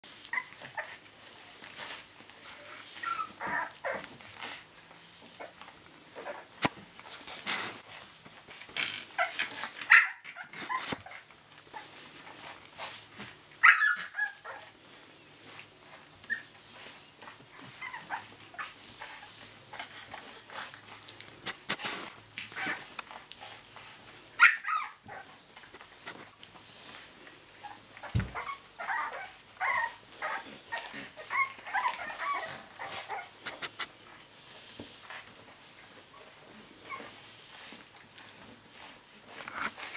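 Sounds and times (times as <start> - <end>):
puppies yipping and whimpering: 0.1 - 39.9
puppy yelps: 3.0 - 4.0, 9.1 - 11.2, 13.6 - 14.8, 17.6 - 19.3, 24.4 - 25.3, 27.6 - 33.6.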